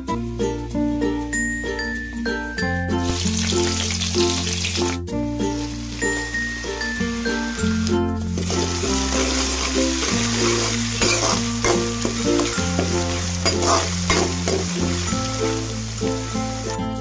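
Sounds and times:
background music: 0.0s - 17.0s
food sizzling in hot oil: 3.0s - 17.0s
spatula scraping pan: 8.4s - 15.0s.

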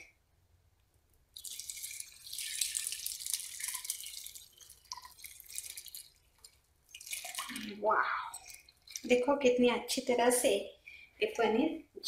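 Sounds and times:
liquid pouring and trickling: 1.3s - 9.4s.

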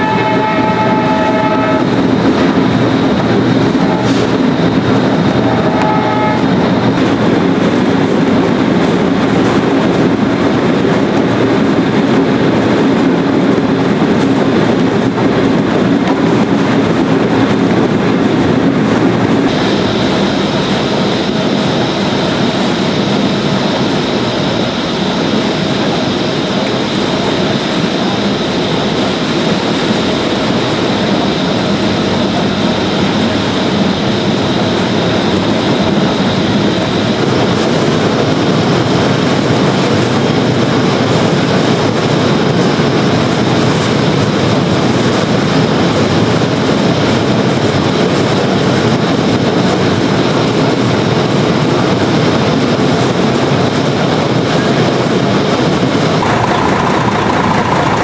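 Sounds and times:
steady tone: 0.0s - 7.5s, 19.4s - 35.0s, 56.0s - 58.0s
belt conveyor running: 0.0s - 58.0s.

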